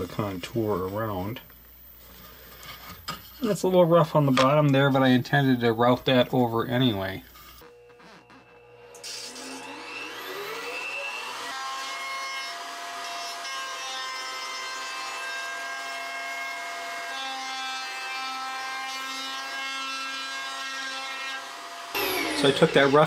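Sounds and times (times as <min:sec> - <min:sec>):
router high whine: 0:07.6 - 0:12.0, 0:22.0 - 0:23.0.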